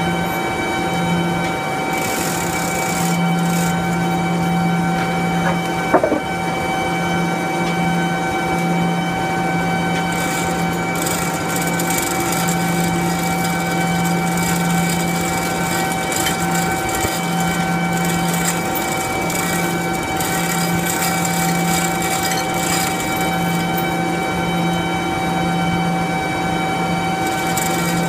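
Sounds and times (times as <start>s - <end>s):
machinery hum with whining tones: 0.0s - 28.0s
hoist chain clinking: 2.0s - 4.0s, 10.1s - 24.0s, 27.2s - 28.0s.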